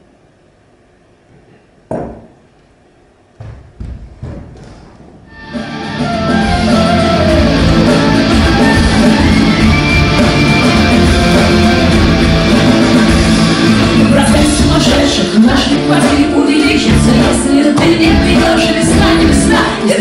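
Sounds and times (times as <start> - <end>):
music with guitar and singing: 5.3 - 20.0.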